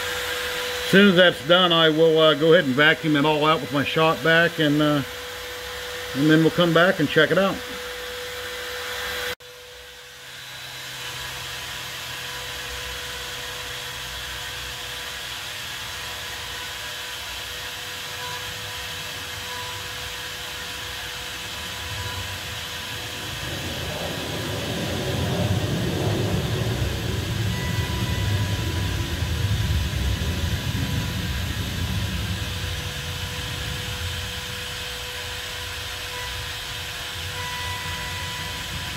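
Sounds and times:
router whining carving wood: 0.0 - 38.9
jet aircraft rumble overhead: 21.5 - 38.9.

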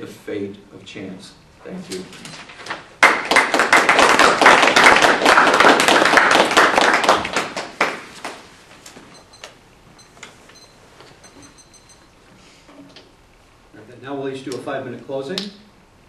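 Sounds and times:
audience applauding: 3.0 - 8.4.

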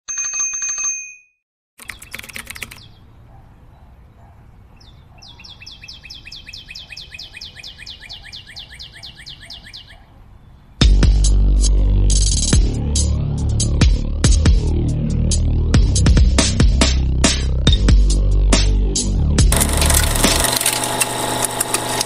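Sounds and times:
bird singing descending chirps: 4.8 - 10.0.

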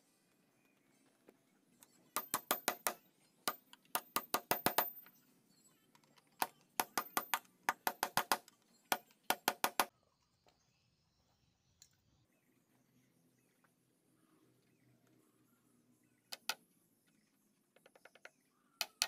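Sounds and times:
hammer driving nails into wood: 2.2 - 5.1, 6.4 - 9.9.

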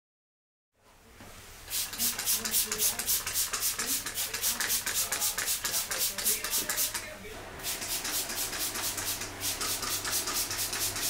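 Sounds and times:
spray bottle hissing sprays: 1.7 - 7.0, 7.6 - 11.0.

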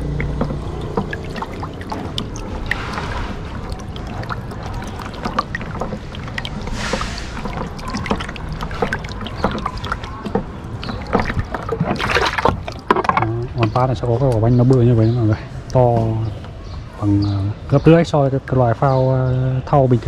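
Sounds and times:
knocks and clicks against tank: 0.0 - 14.8
water sloshing in plastic tank: 0.0 - 16.9
hissing splash: 0.6 - 10.2.

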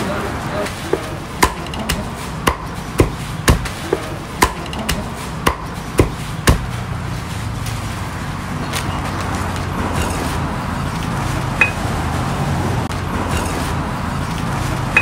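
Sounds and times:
cleaver chopping on wooden block: 0.9 - 6.7.

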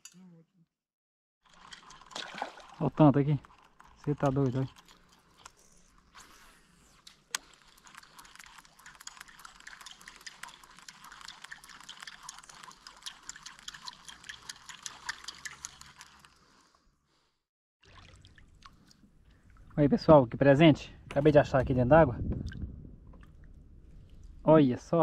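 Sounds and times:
water dripping and trickling: 1.5 - 3.0, 7.8 - 15.9, 17.8 - 19.8.

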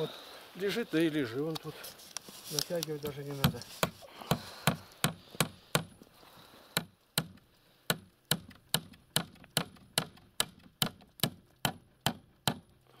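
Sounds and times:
hammer driving nail into wood: 3.4 - 6.0, 6.8 - 12.7.

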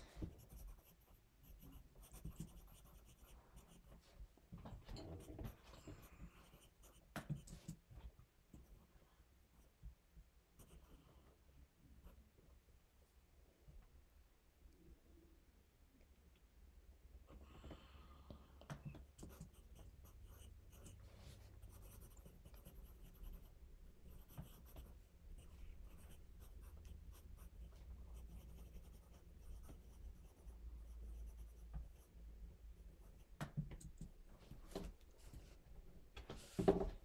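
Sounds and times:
pencil scratching on paper: 0.0 - 4.0, 4.9 - 7.8, 10.6 - 11.0, 19.1 - 32.1.

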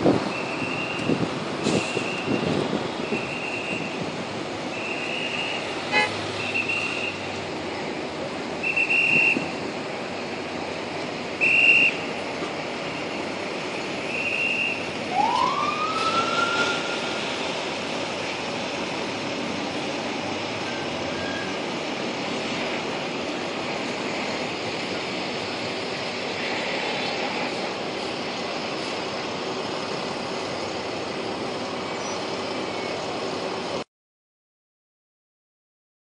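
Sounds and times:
cars idling in traffic: 0.0 - 33.8
police siren whoop: 14.5 - 17.6.

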